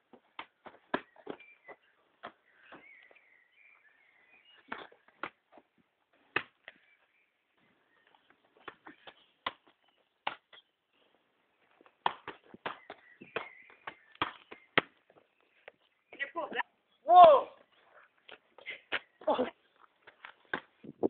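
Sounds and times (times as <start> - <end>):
football being kicked: 12.0 - 15.0.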